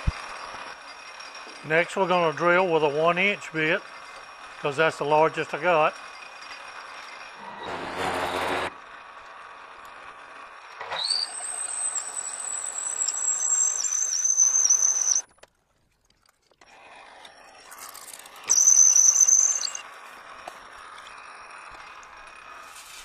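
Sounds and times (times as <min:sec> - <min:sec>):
lathe running: 0:00.0 - 0:15.2
drill bit squealing in metal: 0:00.2 - 0:08.7, 0:10.9 - 0:15.3, 0:17.8 - 0:19.9.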